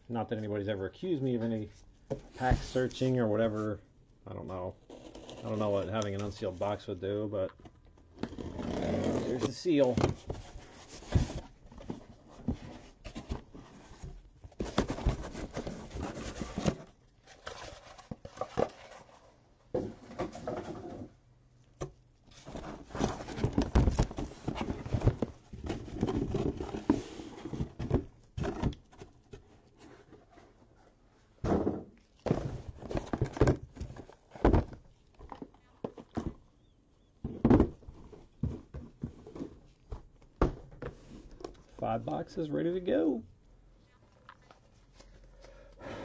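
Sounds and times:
boxes thunking on table: 22.4 - 29.1, 31.4 - 36.4, 37.2 - 41.1.

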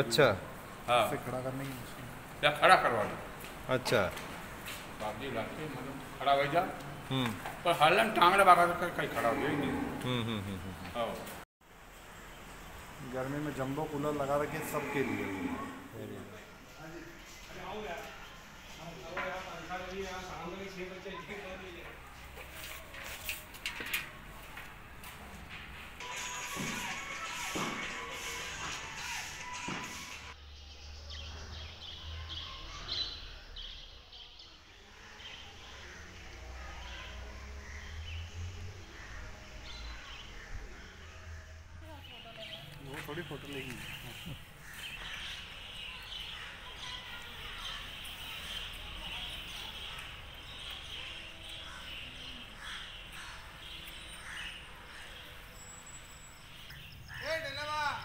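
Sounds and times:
small birds chirping: 26.8 - 58.0.

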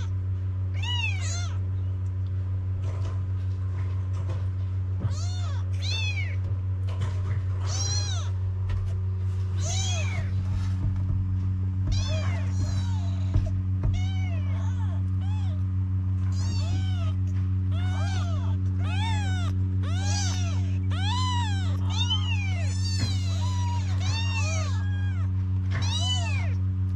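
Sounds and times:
kittens meowing: 0.0 - 1.6, 5.0 - 6.4, 7.6 - 8.4, 9.6 - 10.4, 11.9 - 26.6
steady low hum: 0.0 - 26.9.

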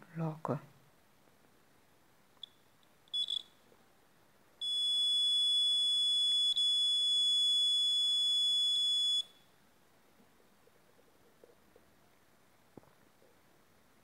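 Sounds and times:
alarm buzzer chirps: 2.4 - 3.5, 4.6 - 9.4.

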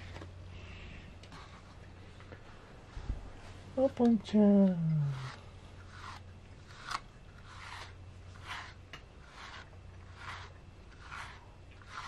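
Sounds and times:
brush rasping through fur: 4.9 - 12.0.

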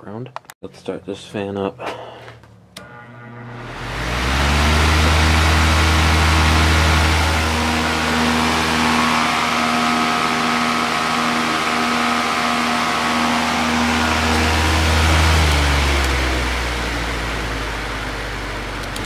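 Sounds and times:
floor fan running: 2.8 - 19.0.

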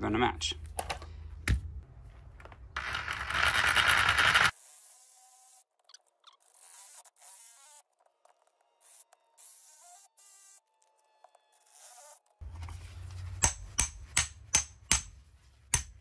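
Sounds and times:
reciprocating saw cutting plastic: 3.1 - 8.2.

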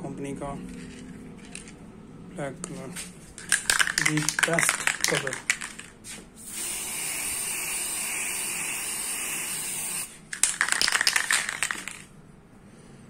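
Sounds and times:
spray paint can hissing: 3.7 - 12.0.

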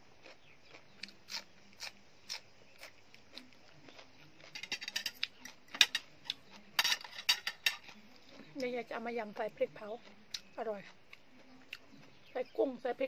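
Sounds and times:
chewing crunchy food: 0.0 - 6.8, 7.5 - 12.4
metal spoon scraping plate: 4.5 - 8.0.

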